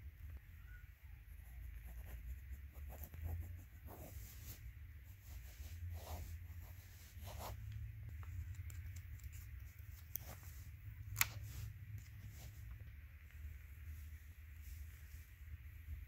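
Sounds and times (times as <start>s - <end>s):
pen scratching on paper: 1.4s - 4.6s, 5.2s - 7.6s.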